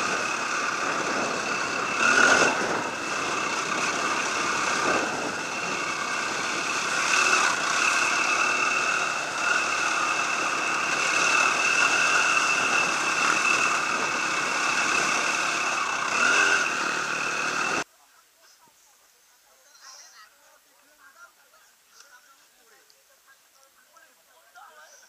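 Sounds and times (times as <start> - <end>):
wind noise on microphone: 0.0 - 6.8
dirt bike engine running: 0.0 - 17.8.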